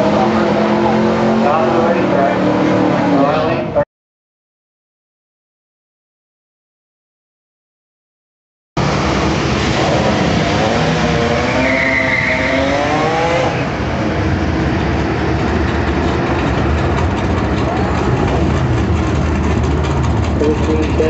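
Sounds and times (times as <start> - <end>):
race car engines rumbling: 0.0 - 3.8, 8.8 - 21.0.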